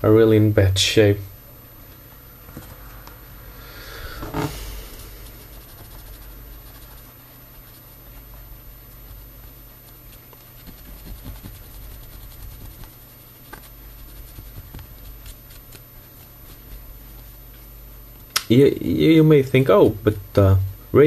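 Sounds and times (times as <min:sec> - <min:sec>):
low steady hum: 0:00.0 - 0:21.0
cotton swab scratchy brushing: 0:04.1 - 0:18.3.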